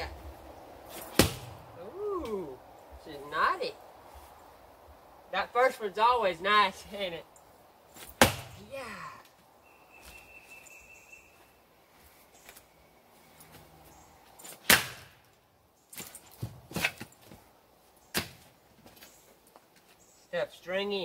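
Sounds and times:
axe chopping wood: 0.9 - 1.6, 8.0 - 8.6, 14.5 - 15.2, 18.1 - 18.5.

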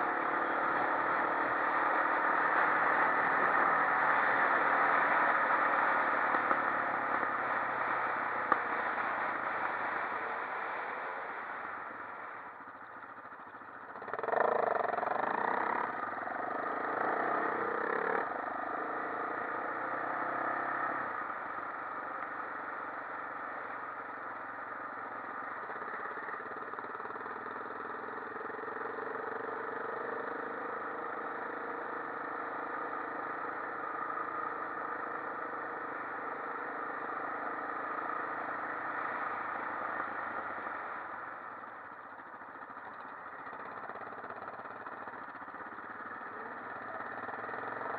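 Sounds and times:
quad bike engine: 0.0 - 47.9.

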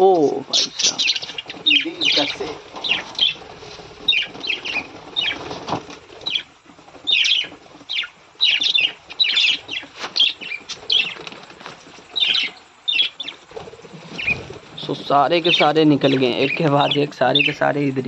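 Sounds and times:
wings flapping: 0.0 - 17.7
budgerigars chirping: 0.4 - 11.4, 12.0 - 13.5, 14.1 - 17.9.

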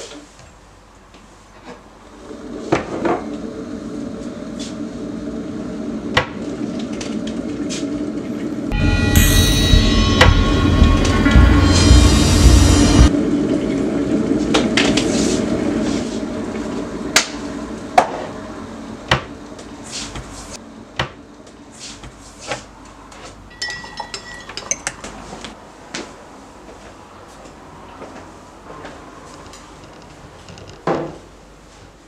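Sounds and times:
loud sound: 8.7 - 13.4
hard objects clinking on hard surface: 23.5 - 25.0.

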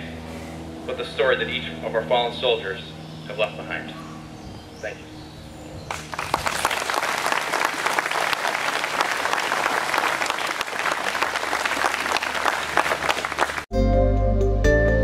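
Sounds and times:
audience applauding: 5.9 - 13.7.

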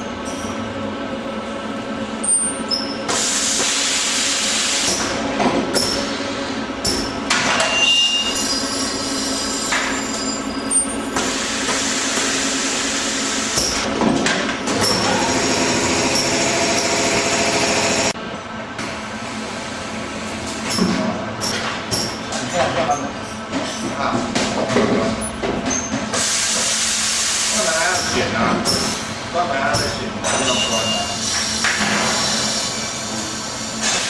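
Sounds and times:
steady mechanical hum: 0.0 - 34.0
short high-pitched squeal: 7.6 - 11.0, 30.5 - 31.5
loud hissing noise: 26.2 - 28.0.

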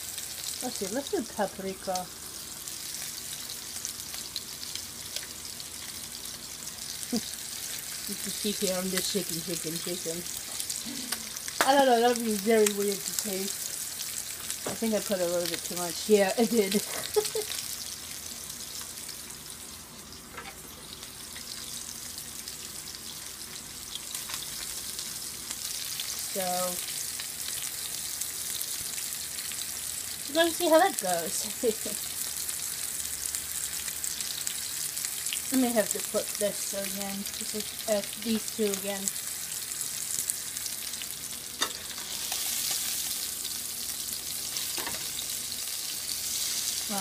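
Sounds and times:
fish frying in hot oil: 0.0 - 47.0.

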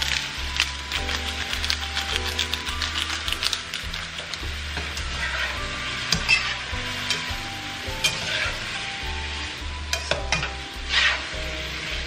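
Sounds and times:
seafood sizzling in a wok: 0.0 - 12.0
turner scraping a pan: 1.0 - 9.0, 9.9 - 12.0.

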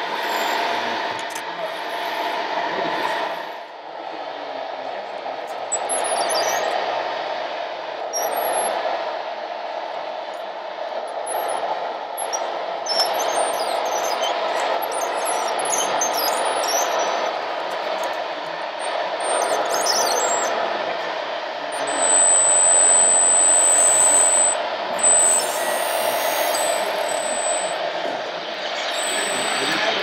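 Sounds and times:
thin high whine: 0.0 - 30.0
model trucks mechanical hum: 12.2 - 30.0
short high squeaks: 28.7 - 29.9.

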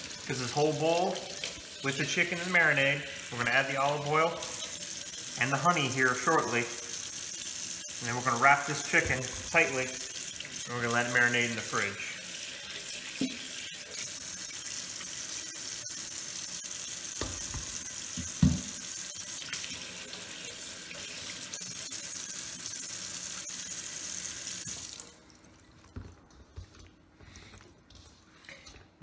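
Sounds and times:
tap water running: 0.0 - 26.9
thump: 18.4 - 18.7.

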